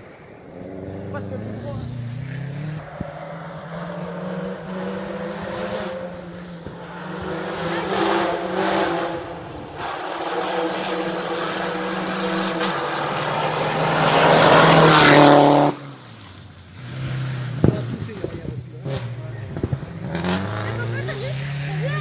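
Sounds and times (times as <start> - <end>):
rally car engine at high revs: 0.4 - 22.0
gravel hissing under tyres: 6.0 - 8.0.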